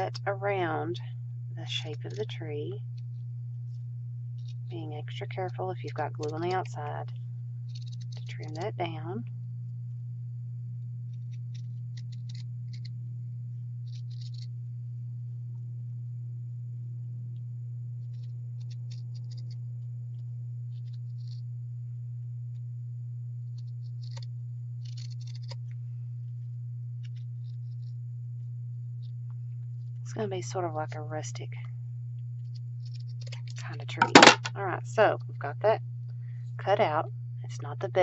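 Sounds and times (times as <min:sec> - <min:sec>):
steady low hum: 0:00.0 - 0:38.0
scissors snipping fabric: 0:23.9 - 0:25.6.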